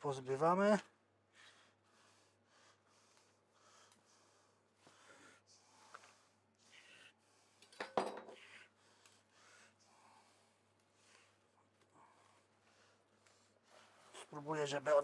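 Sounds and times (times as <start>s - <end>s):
knife clattering on steel table: 7.7s - 8.4s.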